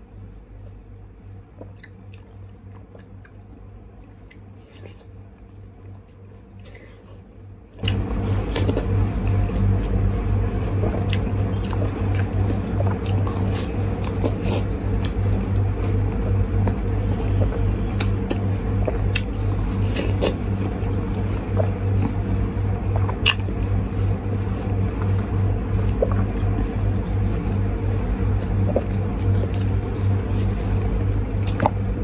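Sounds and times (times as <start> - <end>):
person chewing watermelon: 0.0 - 32.0
steady low hum: 0.0 - 32.0
wet mouth clicks: 23.1 - 23.5.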